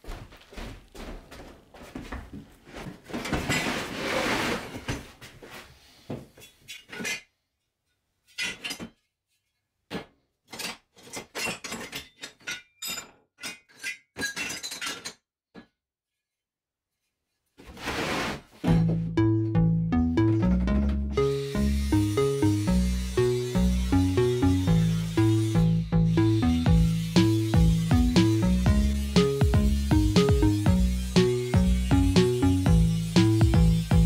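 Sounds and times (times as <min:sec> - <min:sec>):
scrap steel clattering in bin: 0:03.2 - 0:05.0.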